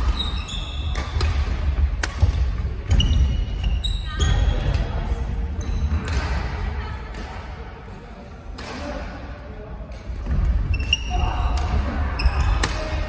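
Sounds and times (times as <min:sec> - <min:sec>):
sneakers squeaking on wooden floor: 0:00.0 - 0:01.3, 0:02.7 - 0:04.8, 0:10.6 - 0:11.2
rackets striking shuttlecock: 0:00.0 - 0:03.7, 0:05.9 - 0:07.6, 0:08.5 - 0:09.1, 0:09.9 - 0:13.0.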